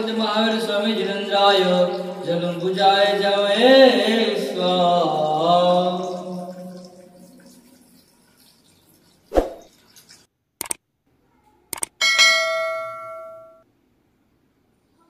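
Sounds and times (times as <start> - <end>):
short clicks: 10.6 - 10.8, 11.7 - 12.0
bright bell ding: 12.0 - 13.6.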